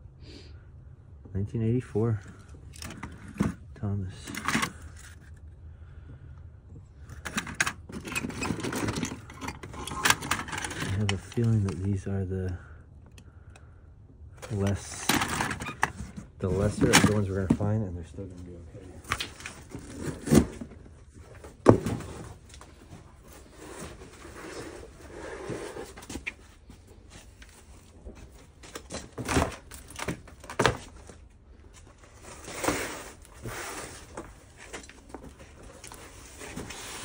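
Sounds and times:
rustling and shuffling: 2.1 - 12.8, 14.4 - 37.0
boxes knocking and clattering: 2.8 - 5.2, 7.1 - 12.0, 14.4 - 17.8, 19.0 - 26.4, 28.1 - 31.3.

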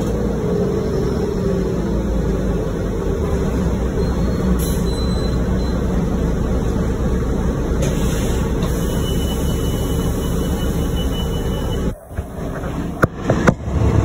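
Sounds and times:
bus diesel engine drone: 0.0 - 14.0
road noise: 0.0 - 14.0.

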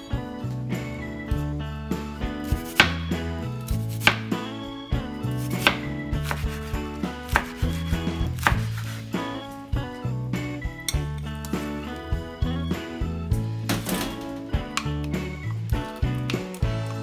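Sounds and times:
knife chopping on cutting board: 2.5 - 4.4, 5.4 - 9.0.

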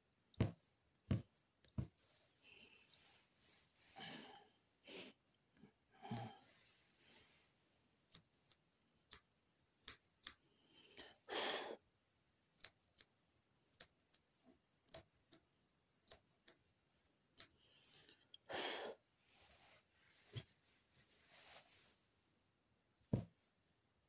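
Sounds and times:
scissors snipping yarn: 8.1 - 10.4, 12.6 - 13.1, 13.7 - 14.2, 14.9 - 16.6, 17.3 - 17.6.

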